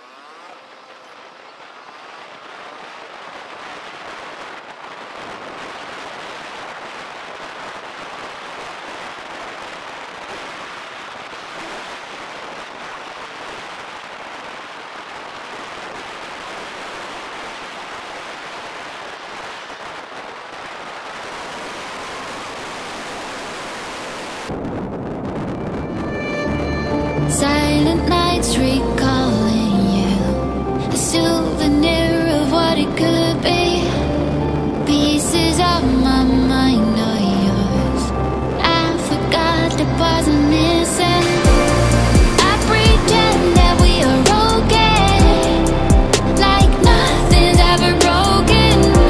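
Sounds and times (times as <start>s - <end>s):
steady rushing noise: 0.0s - 49.0s
music: 26.0s - 49.0s.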